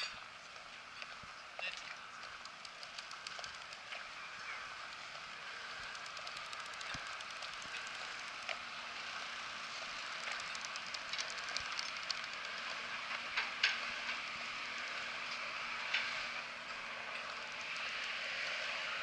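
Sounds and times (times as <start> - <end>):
steady outdoor hiss: 0.0 - 19.0
light ticks and clicks: 0.6 - 4.0, 4.8 - 8.6, 10.1 - 14.2.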